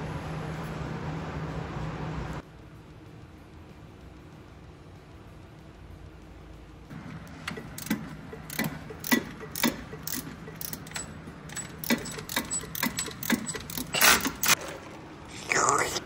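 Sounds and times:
steady low hum: 0.0 - 16.0
hand tools clicking on metal: 7.4 - 14.6.

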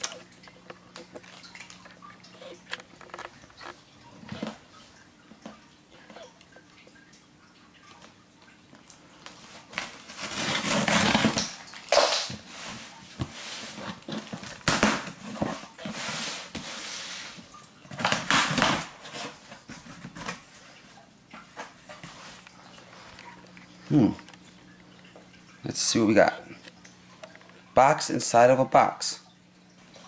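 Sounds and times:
cardboard rustling: 9.6 - 11.4
packing tape ripping: 9.8 - 12.4.

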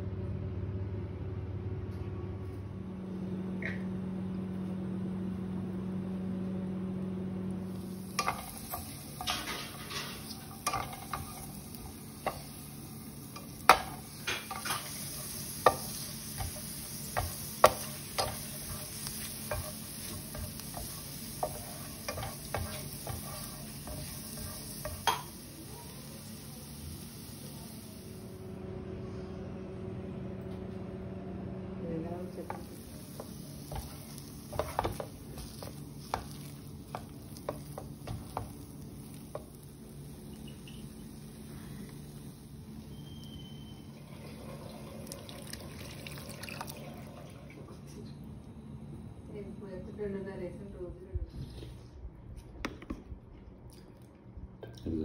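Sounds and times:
low steady hum: 0.0 - 55.0
onion and garlic sizzling in oil: 6.8 - 28.3, 32.2 - 46.7
spatula clicking and scraping pan: 8.0 - 12.7, 13.3 - 25.4, 32.5 - 39.6.

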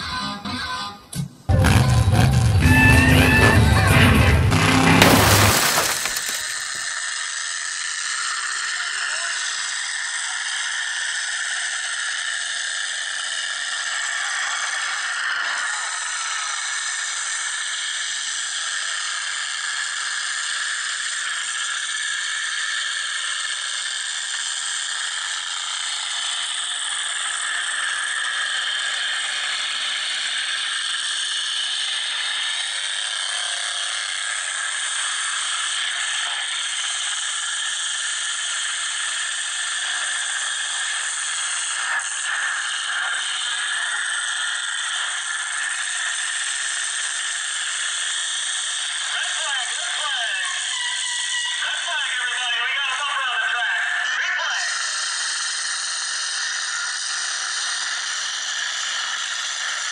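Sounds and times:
truck engines running hard: 1.5 - 5.0
vehicle crash crunch: 1.5 - 6.8.

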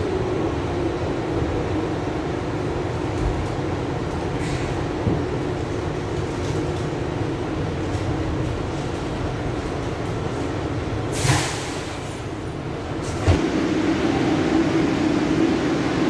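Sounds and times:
subway car rumbling: 0.0 - 16.0
air brake hiss: 11.1 - 12.3.

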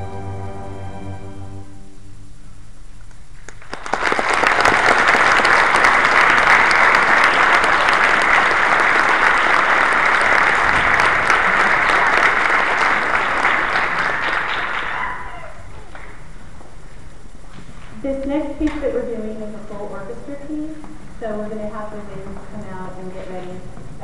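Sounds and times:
audience applause: 3.4 - 16.3.

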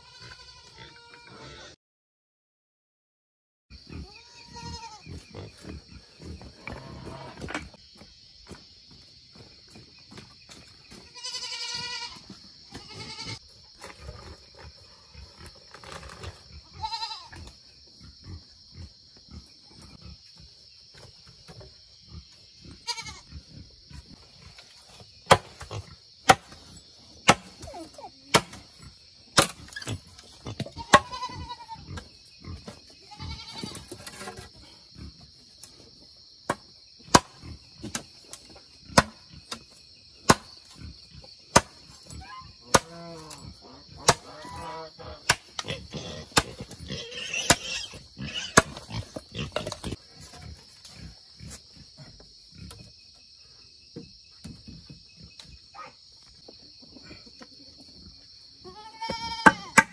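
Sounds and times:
high insect buzz: 0.0 - 1.8, 3.7 - 56.5, 57.9 - 59.9
high-pitched animal cries: 4.0 - 5.0, 42.2 - 45.2
sharp chopping knocks: 25.3 - 25.7, 27.3 - 27.6.

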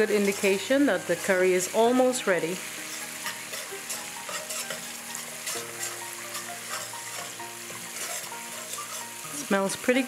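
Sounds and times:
curry paste sizzling in oil: 0.0 - 10.0
metal spoon scraping a pot: 2.9 - 9.4.

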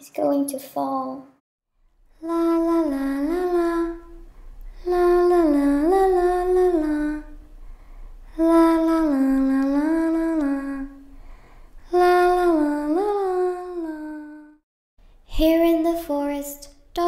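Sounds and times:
girl humming a slow tune: 2.1 - 7.6, 8.3 - 14.6.

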